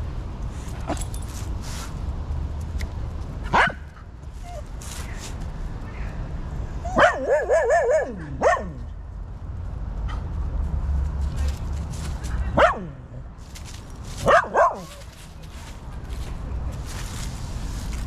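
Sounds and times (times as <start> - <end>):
dog barking in high yelps: 3.5 - 3.9, 6.8 - 8.8, 14.2 - 15.1.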